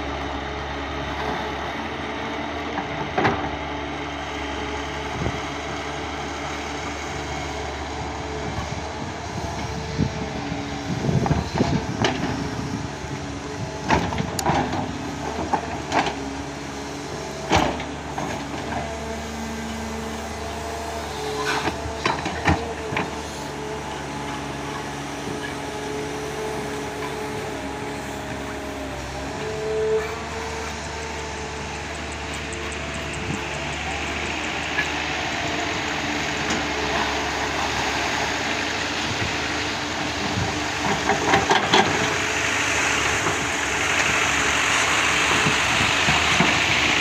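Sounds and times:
diesel engine running: 0:00.0 - 0:47.0
hydraulic whine: 0:17.6 - 0:47.0.

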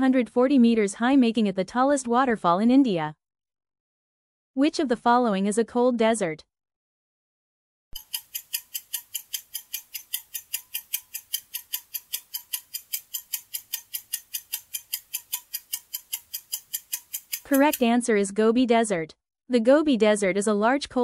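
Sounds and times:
clock ticking: 0:08.0 - 0:17.9.

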